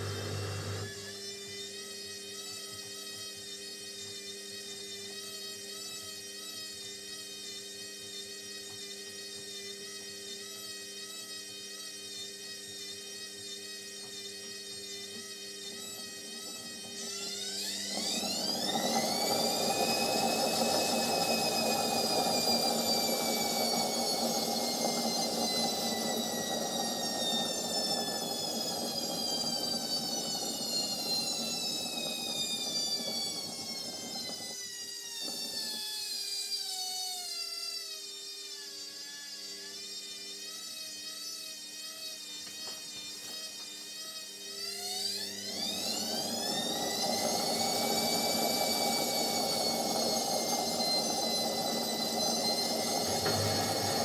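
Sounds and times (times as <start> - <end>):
washing machine motor whine: 0.0 - 54.0
washing machine drum rumble: 53.1 - 54.0.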